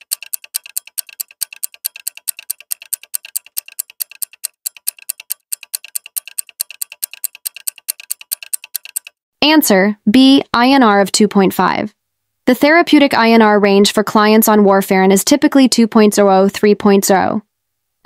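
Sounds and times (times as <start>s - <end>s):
fast clock ticking: 0.0s - 9.2s.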